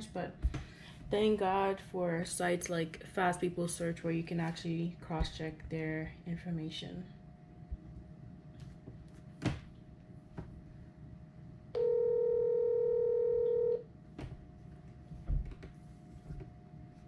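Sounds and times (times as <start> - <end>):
telephone ringback tone: 11.8 - 13.8.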